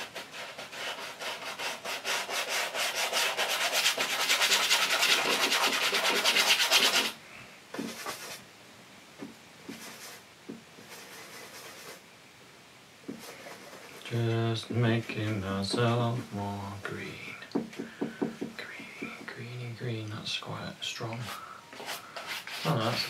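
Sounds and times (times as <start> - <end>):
bristle brush scrubbing canvas: 0.0 - 7.2, 7.8 - 8.4, 9.6 - 12.0, 13.1 - 17.0, 21.2 - 23.0.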